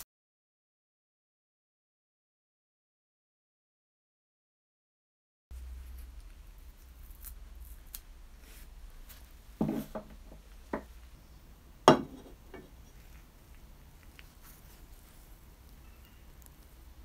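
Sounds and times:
knocks on wooden tabletop: 9.6 - 10.9, 11.9 - 12.7.

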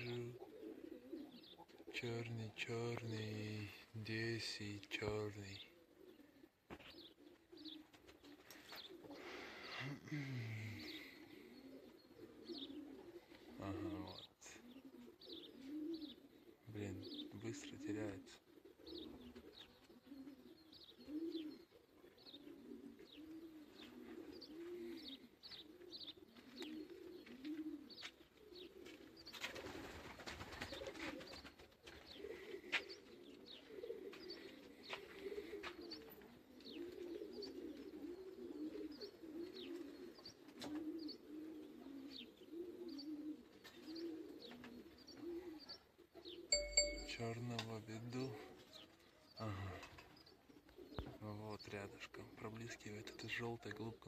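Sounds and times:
pigeons cooing: 0.0 - 47.1, 48.0 - 54.0
small birds chirping: 0.0 - 54.0.

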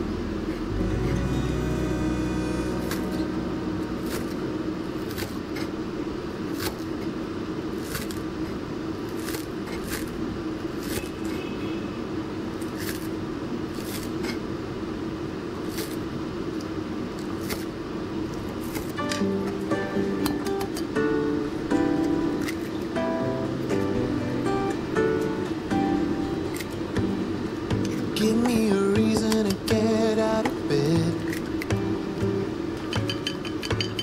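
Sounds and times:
steady low hum: 0.0 - 34.0
cleaver chopping on wooden board: 27.7 - 29.8.

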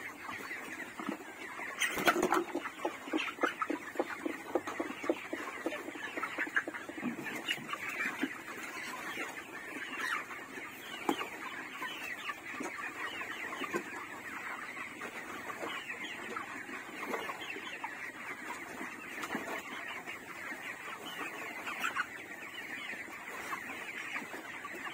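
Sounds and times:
chickens clucking and chirping: 0.0 - 24.9.

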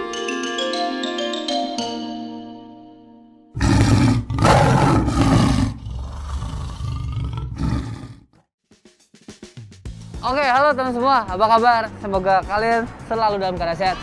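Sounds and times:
mallet notes of jingle: 0.0 - 3.1
big cat roar: 3.6 - 8.3.

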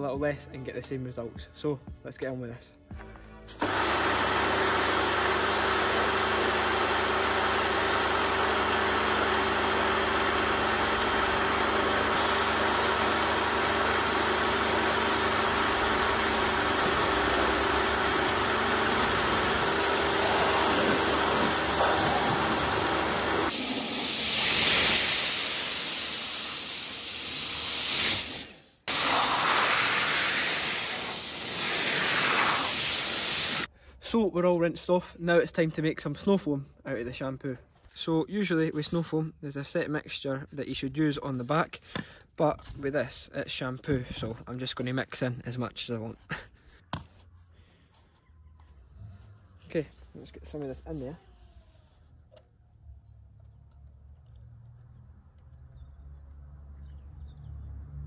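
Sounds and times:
pressure washer motor humming: 3.5 - 33.7
water jet spraying: 6.7 - 33.7.

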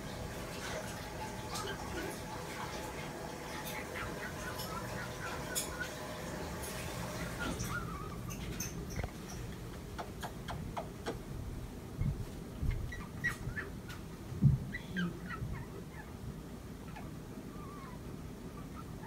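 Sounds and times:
cockatoo clicking and chirping: 3.5 - 6.0, 7.2 - 11.2, 12.6 - 14.1
low thumps: 14.3 - 14.7.

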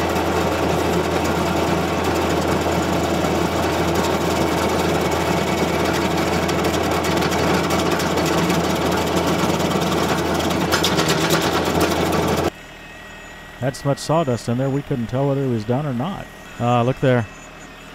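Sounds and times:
stump grinder cutting wood: 0.0 - 12.6, 13.7 - 17.9
tractor engine drone: 0.0 - 17.9.

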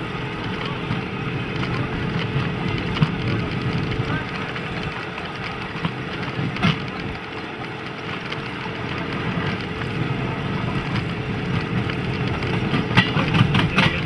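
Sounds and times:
railcar engine droning: 0.0 - 14.0.

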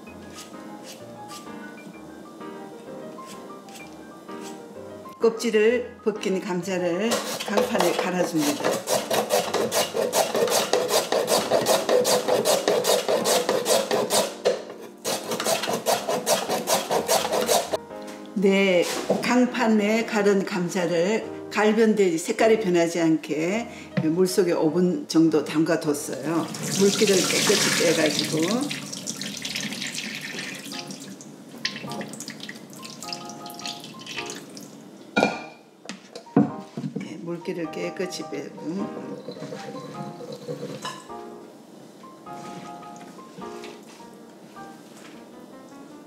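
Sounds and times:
potato rasping on grater: 0.3 - 1.5, 7.1 - 14.4, 15.0 - 17.8
water draining and dripping: 26.4 - 34.8.

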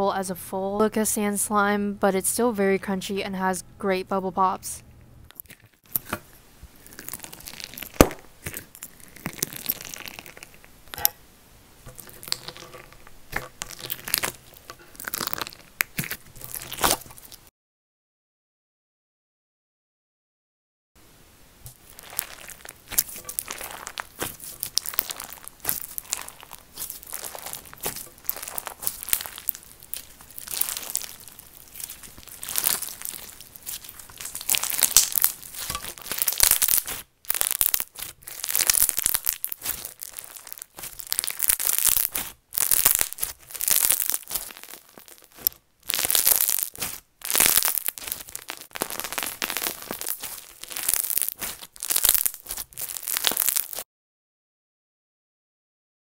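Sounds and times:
crunchy slime crackling: 5.3 - 11.2, 11.8 - 17.5, 21.7 - 53.9.

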